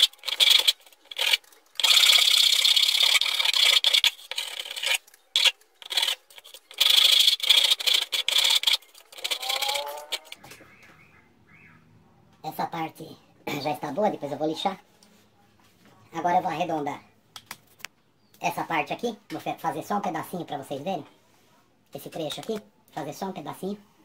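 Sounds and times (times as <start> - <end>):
hand file scraping wood: 0.0 - 10.4.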